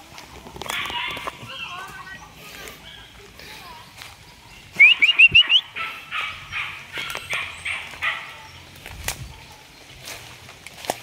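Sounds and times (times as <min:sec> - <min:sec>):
chicken squawking and cackling: 0:04.6 - 0:08.6.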